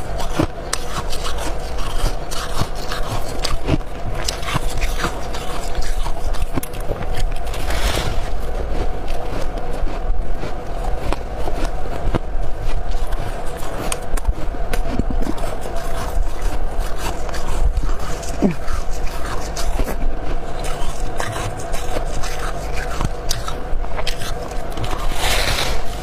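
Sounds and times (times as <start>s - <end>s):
steady hum: 0.0s - 26.0s
ice crunching and scraping: 7.4s - 9.4s, 24.1s - 26.0s.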